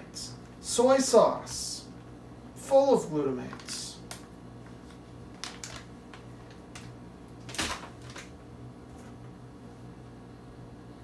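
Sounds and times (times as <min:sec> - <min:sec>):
low steady hum: 0:00.0 - 0:11.0
plastic bag rustle: 0:04.6 - 0:08.3.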